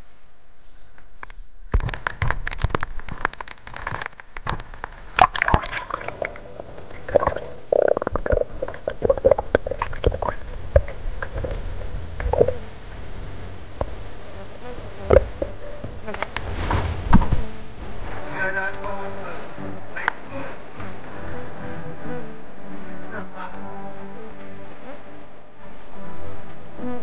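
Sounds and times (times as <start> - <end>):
underwater clicks and knocks: 1.8 - 12.6
muffled underwater sloshing: 4.0 - 14.3, 15.0 - 21.0.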